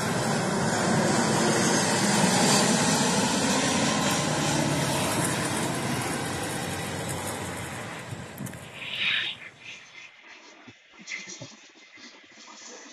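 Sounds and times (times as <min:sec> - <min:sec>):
jet airliner engine roar: 0:00.0 - 0:12.9.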